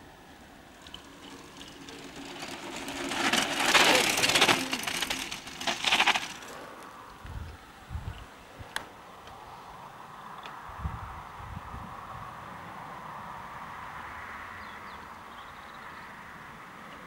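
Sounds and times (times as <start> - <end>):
bike tyres crunching on gravel: 0.6 - 6.9.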